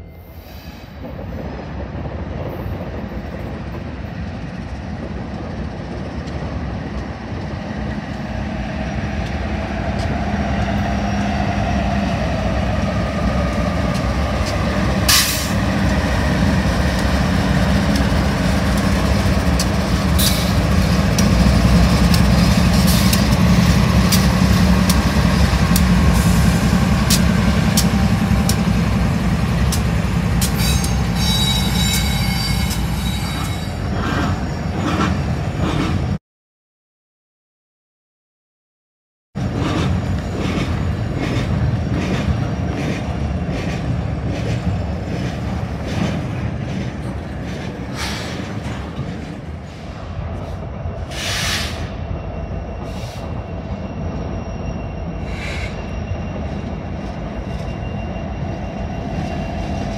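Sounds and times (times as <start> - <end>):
diesel locomotive engines droning: 0.0 - 36.2, 39.4 - 59.9
train wheels clicking over rail joints: 13.4 - 31.2.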